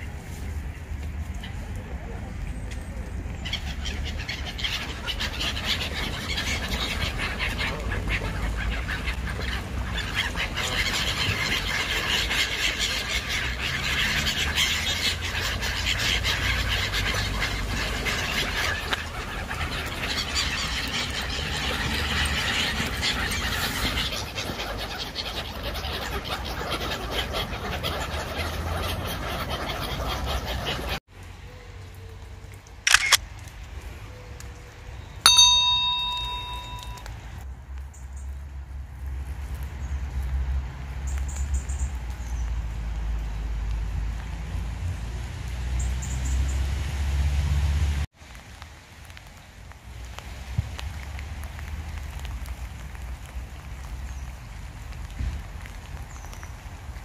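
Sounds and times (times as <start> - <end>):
flock of gulls calling: 3.4 - 31.0
single click: 32.9 - 33.2
bell-like chime: 35.3 - 37.1.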